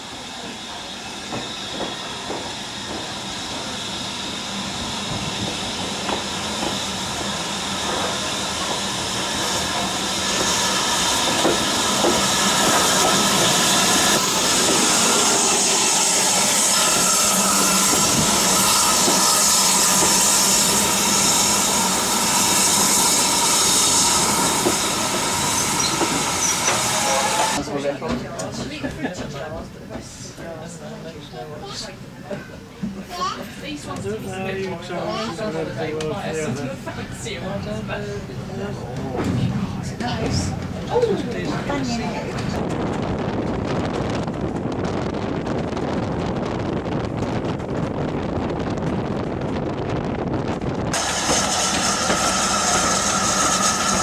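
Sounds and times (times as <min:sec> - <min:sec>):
steam hissing: 0:00.0 - 0:27.6, 0:50.9 - 0:54.0
train wheels clicking and knocking: 0:01.2 - 0:03.9, 0:05.1 - 0:30.1, 0:50.5 - 0:54.0.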